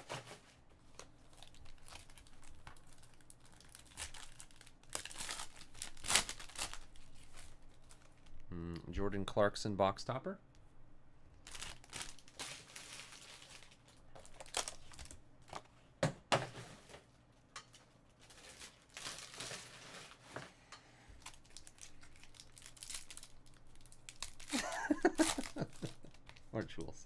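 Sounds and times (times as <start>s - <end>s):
foil pack crinkling and tearing: 0.0s - 8.4s, 11.4s - 15.6s, 17.7s - 20.3s, 21.2s - 26.6s.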